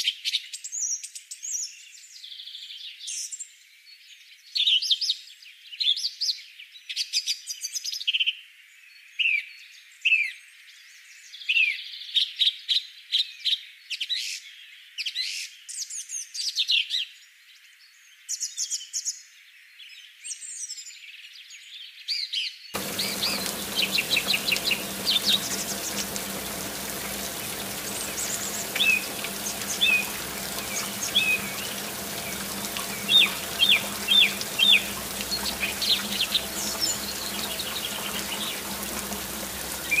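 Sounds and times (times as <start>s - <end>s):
birds chirping: 22.8s - 40.0s
water pouring into pool: 22.8s - 40.0s
water pump humming: 22.8s - 40.0s.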